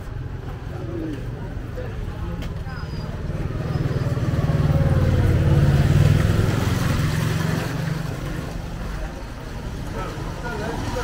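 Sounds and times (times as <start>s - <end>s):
vehicle engine passing by: 2.8s - 9.1s.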